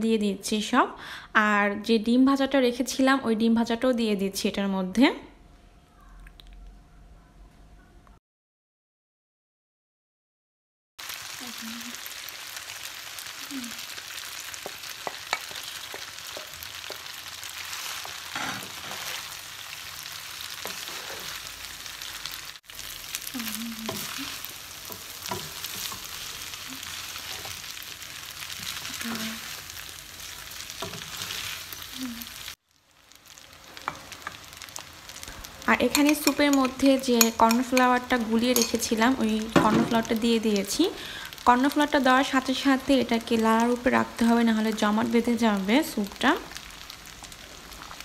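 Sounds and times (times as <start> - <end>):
noodles sizzling in a frying pan: 11.0 - 48.0
wooden spatula scraping a pan: 14.6 - 19.4, 20.5 - 21.5, 30.3 - 31.9.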